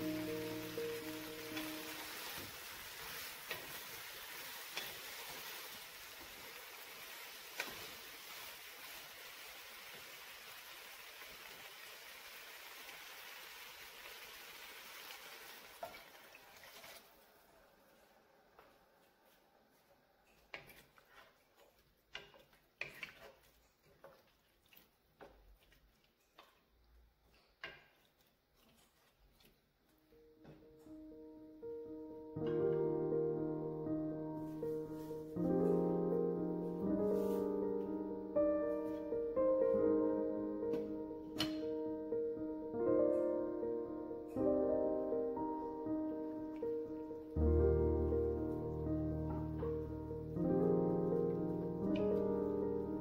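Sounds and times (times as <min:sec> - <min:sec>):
wooden spatula stirring: 0:00.0 - 0:06.5, 0:18.6 - 0:29.9, 0:36.5 - 0:38.0
vegetables sizzling in oil: 0:00.0 - 0:17.2.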